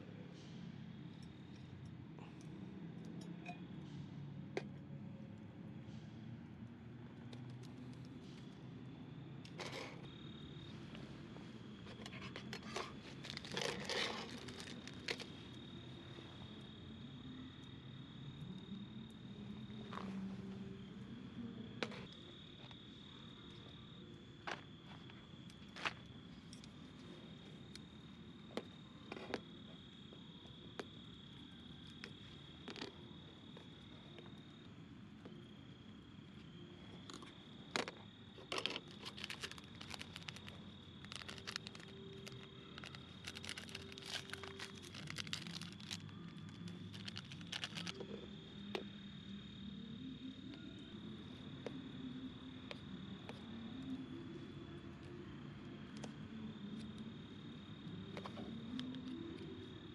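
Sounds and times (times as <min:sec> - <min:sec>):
crickets trilling: 0:00.0 - 0:59.9
plastic sachet crinkling and tearing: 0:13.2 - 0:15.3, 0:38.5 - 0:48.1.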